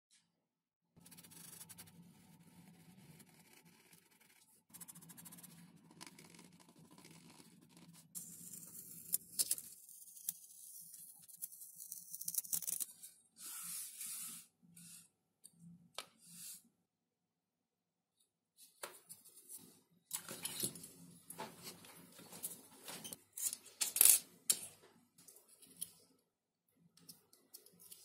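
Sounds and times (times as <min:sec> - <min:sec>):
scratchy strokes: 0:01.0 - 0:09.2.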